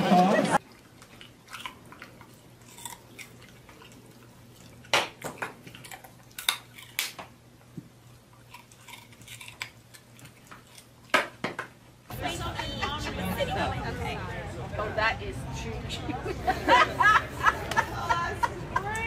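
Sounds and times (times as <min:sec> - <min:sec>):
dog crunching carrot: 0:00.6 - 0:11.4.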